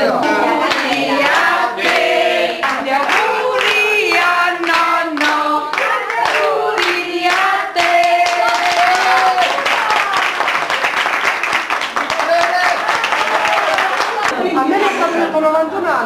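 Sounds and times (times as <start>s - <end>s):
people singing in chorus: 0.0s - 9.0s.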